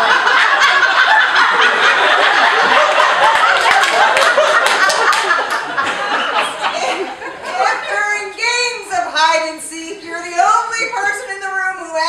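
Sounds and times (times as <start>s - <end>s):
audience laughing loudly: 0.0s - 8.3s.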